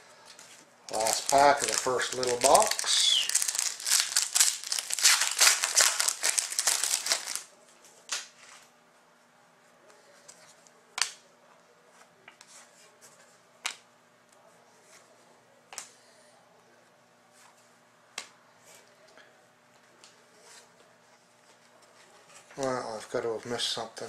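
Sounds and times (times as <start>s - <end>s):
foil wrapper crinkling and tearing: 0.9s - 7.5s.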